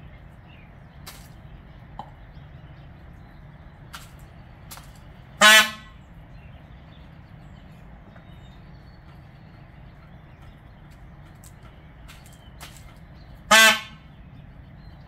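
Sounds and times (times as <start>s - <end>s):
beak pecking on concrete: 8.1s - 13.8s.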